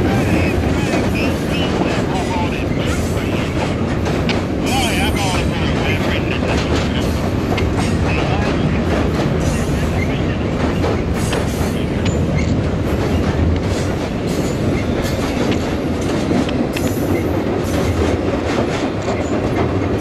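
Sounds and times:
train rumbling over bridge: 0:00.0 - 0:20.0
wheels clacking over rail joints: 0:00.0 - 0:20.0.

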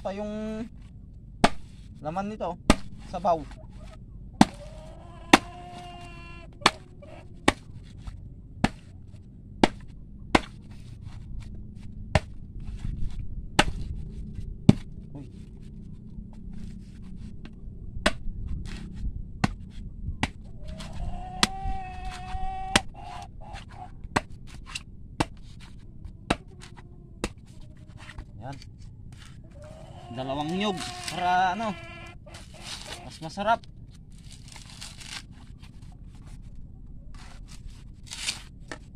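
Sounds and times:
machete chopping coconut husk: 0:01.4 - 0:01.8, 0:02.7 - 0:03.2, 0:04.4 - 0:07.9, 0:08.6 - 0:08.9, 0:09.6 - 0:10.8, 0:12.1 - 0:12.8, 0:13.6 - 0:13.9, 0:14.7 - 0:14.9, 0:17.4 - 0:18.8, 0:19.4 - 0:27.5, 0:30.2 - 0:31.7, 0:32.3 - 0:35.5, 0:37.2 - 0:38.9.

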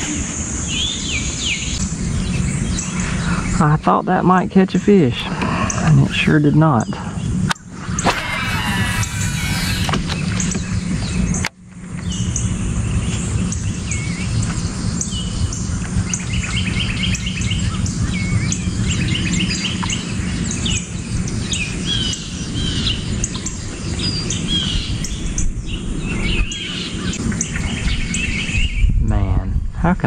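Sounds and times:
birds chirping and calling: 0:00.6 - 0:29.0
steady low rumble: 0:01.7 - 0:30.0.

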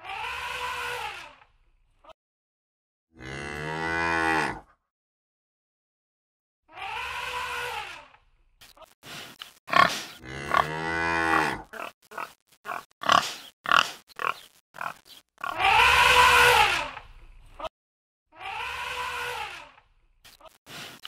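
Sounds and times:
pig-like grunts and squeals: 0:00.0 - 0:01.4, 0:06.7 - 0:08.2, 0:09.7 - 0:17.0, 0:18.3 - 0:19.8
cattle-like moo: 0:03.2 - 0:04.7, 0:09.8 - 0:13.2.

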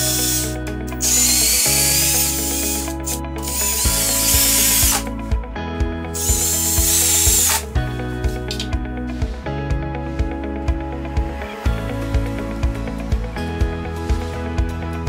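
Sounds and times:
cordless drill driving a screw: 0:00.0 - 0:05.1, 0:06.2 - 0:07.7
background music with steady beat: 0:00.0 - 0:15.0.

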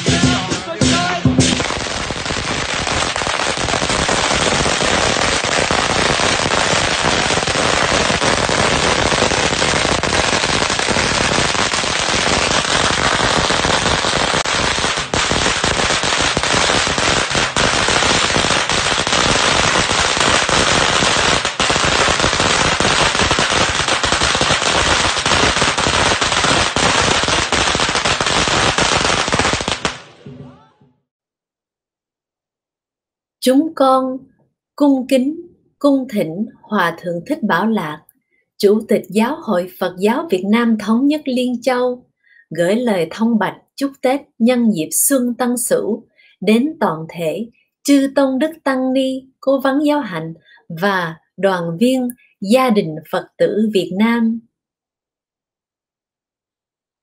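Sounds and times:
string of firecrackers going off: 0:00.0 - 0:30.6.

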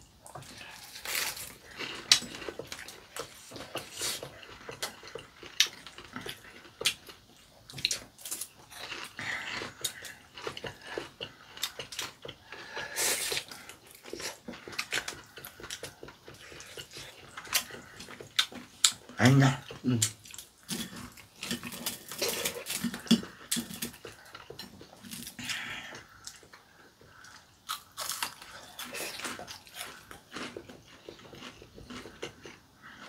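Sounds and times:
wet chewing: 0:00.0 - 0:33.0
slurping noodles: 0:09.0 - 0:18.8.

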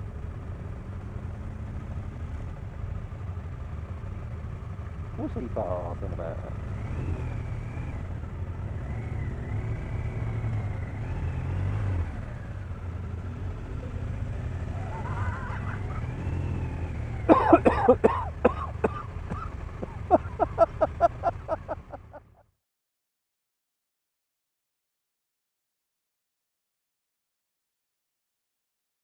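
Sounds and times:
motorcycle engine running: 0:00.0 - 0:22.4.

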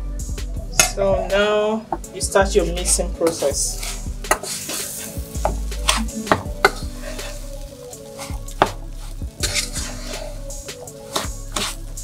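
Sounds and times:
wooden spoon scraping metal pot: 0:02.8 - 0:12.0.

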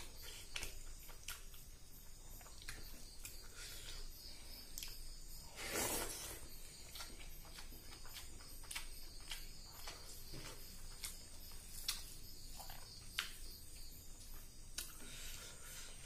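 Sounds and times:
chewing with lip-smacking: 0:00.1 - 0:04.1, 0:06.1 - 0:13.5.

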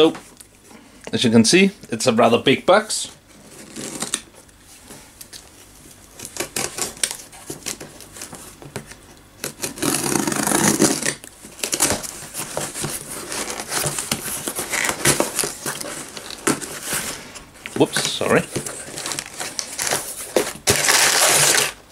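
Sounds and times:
tape tearing: 0:03.6 - 0:04.3, 0:06.2 - 0:17.1, 0:18.6 - 0:21.9
cardboard rustling: 0:06.2 - 0:21.9
utility knife cutting tape: 0:09.4 - 0:11.2.

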